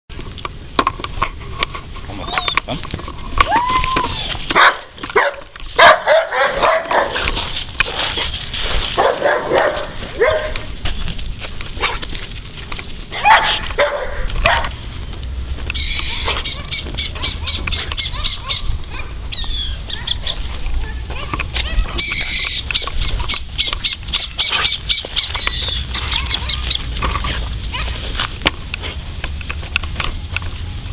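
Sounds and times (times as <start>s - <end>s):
dog barking and whining: 4.5s - 7.2s, 9.0s - 10.7s, 13.2s - 14.7s, 16.0s - 23.4s.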